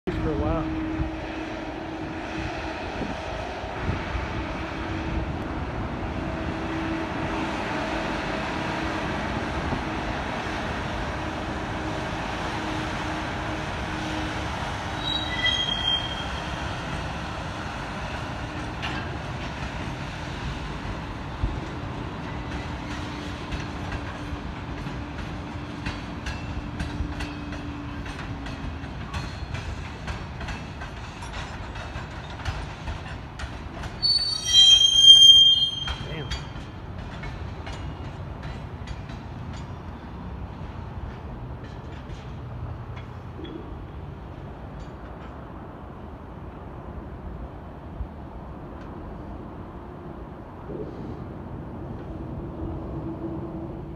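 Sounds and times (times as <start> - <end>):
freight train wheels squealing on rail: 11.8 - 45.5
wheels clicking over rail joints: 18.0 - 34.8, 35.6 - 46.6.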